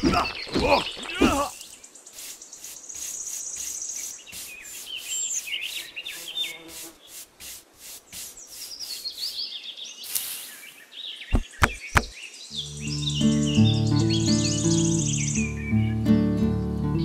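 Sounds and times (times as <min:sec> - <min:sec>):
birds chirping: 0:00.0 - 0:16.1
paintbrush scratching over sand: 0:01.6 - 0:10.8.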